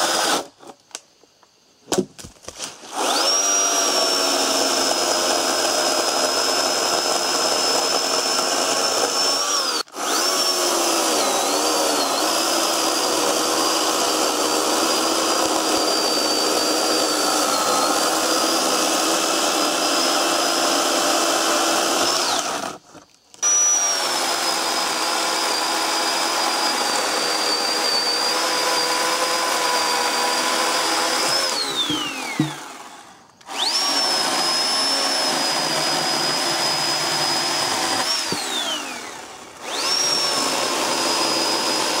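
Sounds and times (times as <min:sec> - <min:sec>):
electric chainsaw whining: 0:00.0 - 0:00.8, 0:02.6 - 0:42.0.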